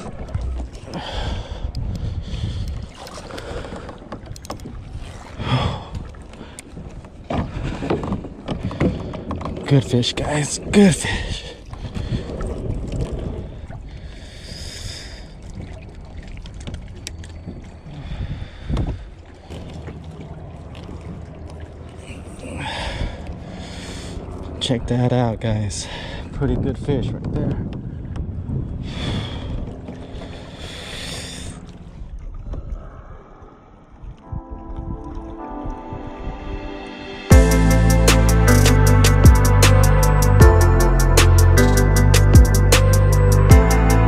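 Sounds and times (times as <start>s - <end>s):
water washing around kayak: 0.0s - 26.5s, 27.2s - 34.3s
wind rumble on microphone: 0.0s - 37.2s
wind rushing over microphone: 26.2s - 30.0s, 34.0s - 37.3s
soft ambient music: 34.1s - 44.0s.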